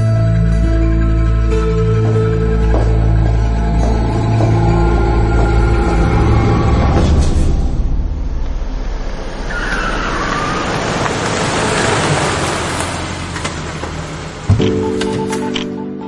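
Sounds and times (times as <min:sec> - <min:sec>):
car driving off: 0:03.8 - 0:15.0.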